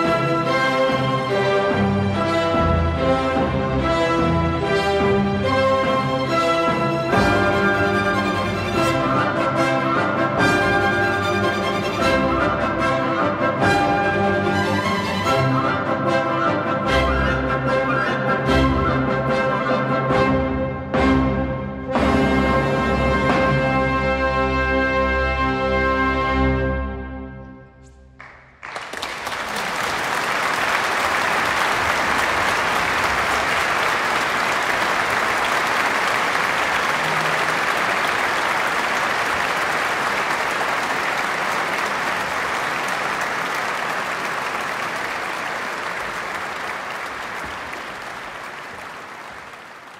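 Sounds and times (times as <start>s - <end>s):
audience applause: 28.2s - 49.9s.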